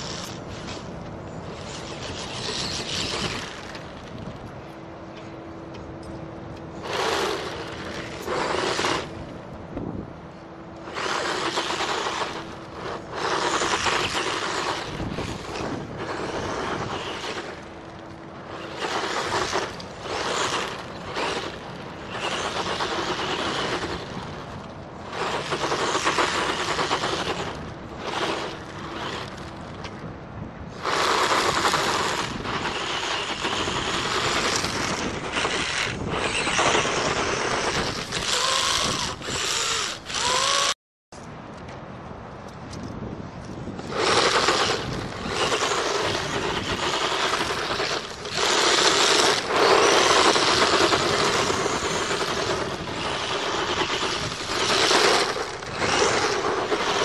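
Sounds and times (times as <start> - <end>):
electric motor and gearbox whirring: 0.0 - 10.0, 10.7 - 30.1, 30.7 - 40.8, 43.4 - 57.0.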